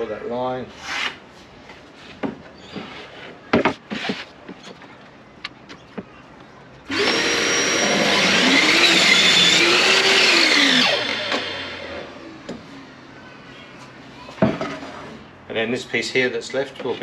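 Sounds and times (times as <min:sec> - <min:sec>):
electric saw cutting wood: 0:06.9 - 0:12.2.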